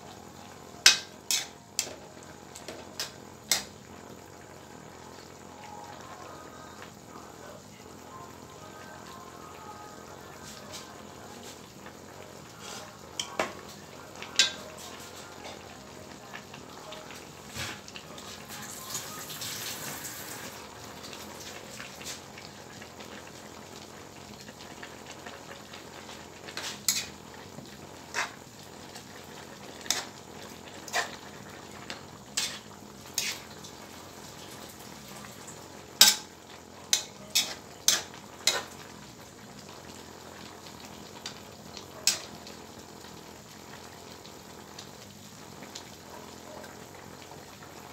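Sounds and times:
vegetables sizzling: 0.0s - 47.9s
spatula scraping metal wok: 1.3s - 1.9s, 26.5s - 27.2s, 28.1s - 28.4s, 30.8s - 31.2s, 32.3s - 33.7s, 36.9s - 38.8s.

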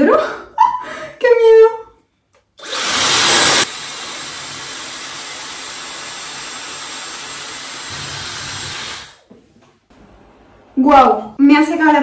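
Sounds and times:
hair dryer blowing air: 2.6s - 9.2s.

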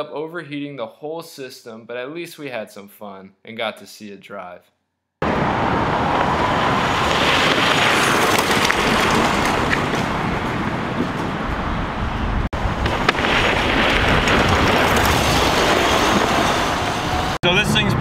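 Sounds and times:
wind rushing on microphone: 5.2s - 17.4s.

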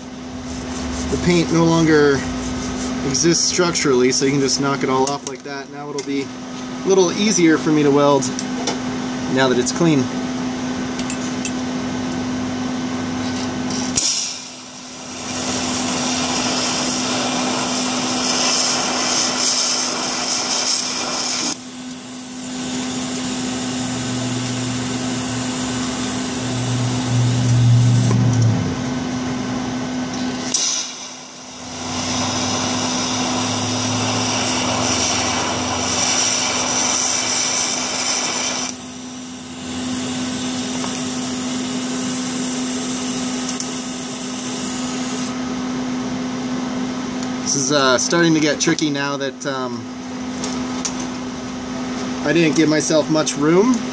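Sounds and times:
welder hissing: 0.0s - 4.5s, 13.7s - 28.2s, 30.4s - 45.4s
low hum: 22.0s - 37.4s.

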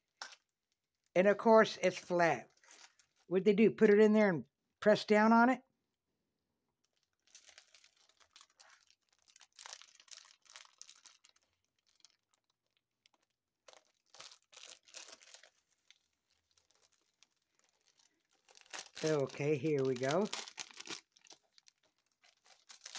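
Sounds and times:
plastic wrapping crinkling: 2.5s - 3.3s, 6.8s - 22.9s.

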